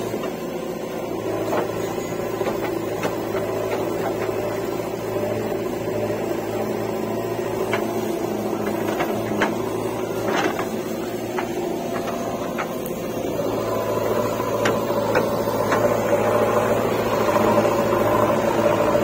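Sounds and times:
diesel engine running: 0.0 - 19.0
bucket and arm clanks: 1.3 - 4.7, 7.4 - 16.3.

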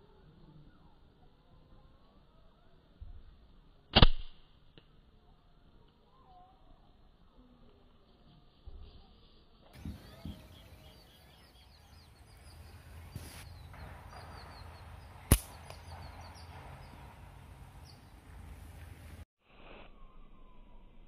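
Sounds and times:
slingshot shot crack: 3.9 - 4.6, 13.1 - 16.6
small birds chirping: 5.2 - 19.2.

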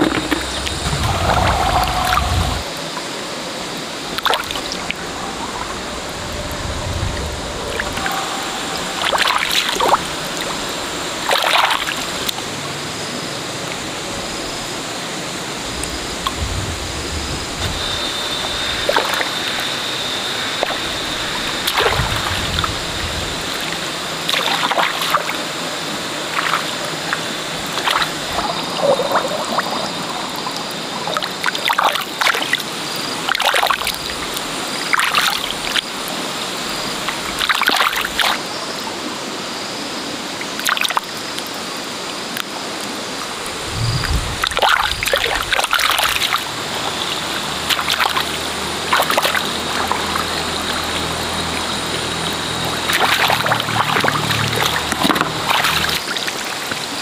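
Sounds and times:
splashing in muddy water: 0.0 - 3.0, 4.0 - 12.3, 20.5 - 32.7, 36.8 - 38.5, 42.4 - 57.0
high-pitched background drone: 0.0 - 11.3.

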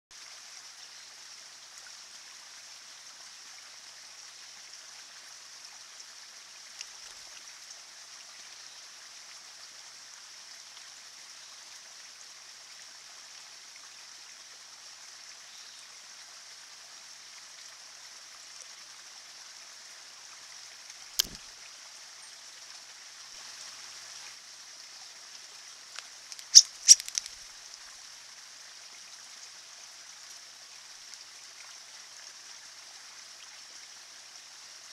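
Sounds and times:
stream trickling over rocks: 0.1 - 34.9
sharp clicks: 21.2 - 21.4, 26.0 - 27.4.

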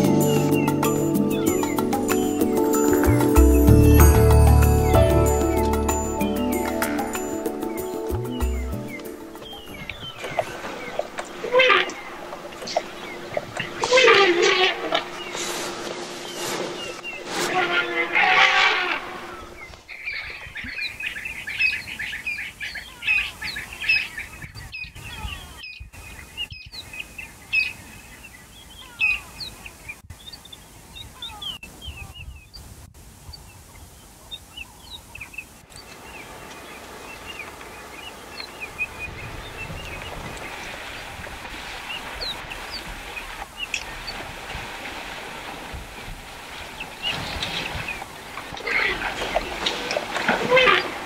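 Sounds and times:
birds chirping: 0.0 - 32.7, 33.3 - 44.4, 46.3 - 51.0
steady background hiss: 32.6 - 49.6.

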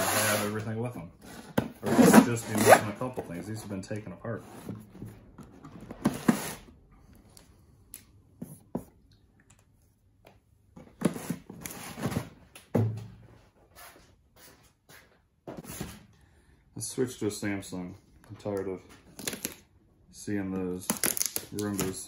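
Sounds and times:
cardboard boxes scraping on wood: 0.0 - 0.6, 1.2 - 3.2, 5.9 - 6.7.

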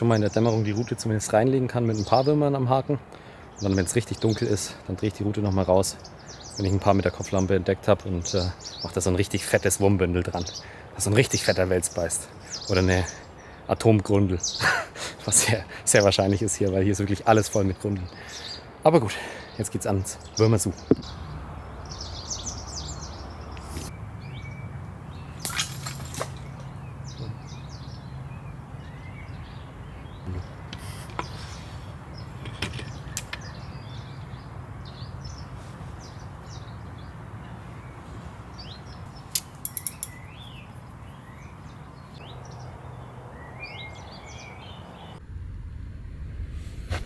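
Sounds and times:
small birds chirping: 0.0 - 45.2
sharp clicks: 39.3 - 40.2.

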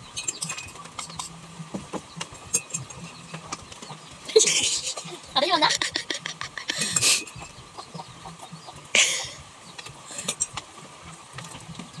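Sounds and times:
cutlery clinking on plates: 0.1 - 1.3, 2.2 - 4.0, 10.1 - 10.6.

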